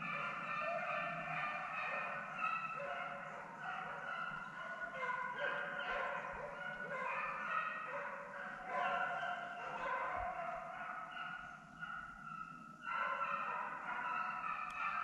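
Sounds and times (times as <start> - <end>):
hounds baying: 0.0 - 15.0.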